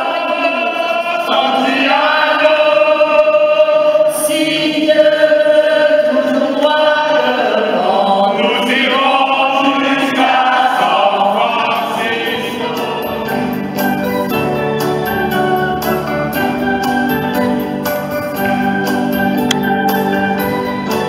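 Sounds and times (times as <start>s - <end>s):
mixed choir singing: 0.0s - 14.4s
electronic organ chords: 8.3s - 21.0s.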